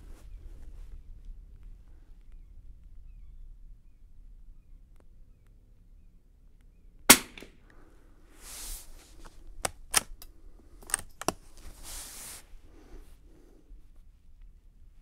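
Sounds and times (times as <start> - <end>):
rifle shot: 7.1 - 7.6
rifle bolt sliding rasps: 9.2 - 12.2.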